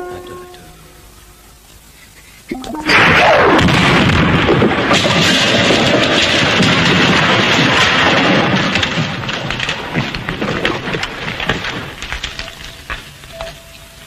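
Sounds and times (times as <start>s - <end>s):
falling bricks clattering: 2.6s - 13.6s
wall crashing rumble: 2.9s - 12.2s.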